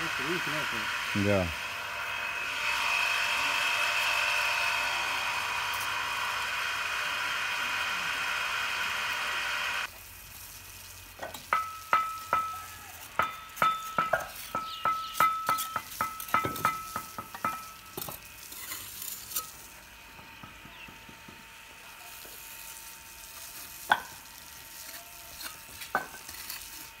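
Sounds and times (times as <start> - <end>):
bricks and trowel clinking: 11.2 - 20.9, 24.9 - 26.9.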